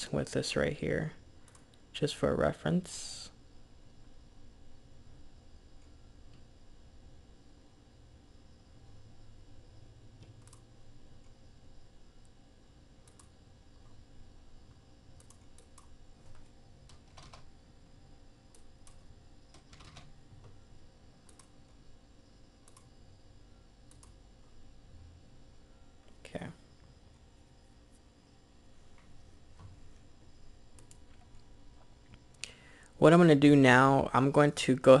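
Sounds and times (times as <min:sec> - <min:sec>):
steady low hum: 0:00.0 - 0:35.0
keyboard and mouse clicks: 0:10.2 - 0:10.7, 0:13.0 - 0:13.3, 0:15.2 - 0:17.5, 0:18.5 - 0:20.6, 0:21.2 - 0:21.6, 0:22.6 - 0:22.9, 0:23.9 - 0:24.2, 0:30.8 - 0:31.4.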